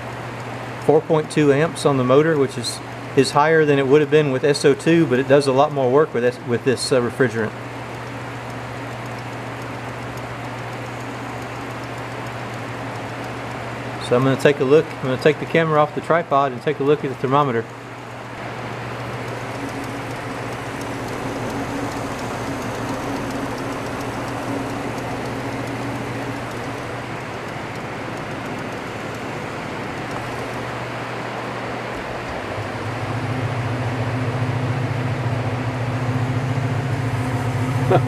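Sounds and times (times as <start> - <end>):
compressor electric hum: 0.0 - 38.0
rain hiss: 17.7 - 32.6.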